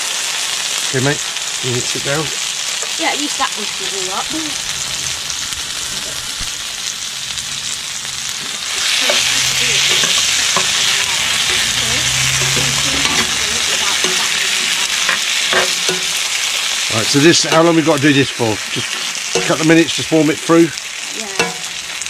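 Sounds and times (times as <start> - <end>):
food sizzling in a frying pan: 0.0 - 22.0
spoon stirring: 8.7 - 16.4, 18.8 - 19.8.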